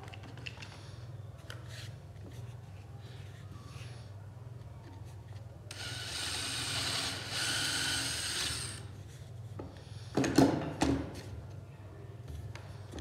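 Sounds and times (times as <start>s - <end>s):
cordless drill boring through wood: 5.7s - 8.8s.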